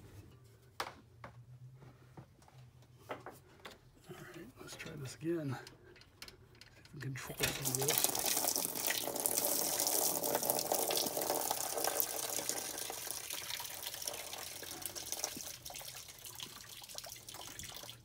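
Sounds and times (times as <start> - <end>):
coolant splashing into drain pan: 7.3 - 18.0.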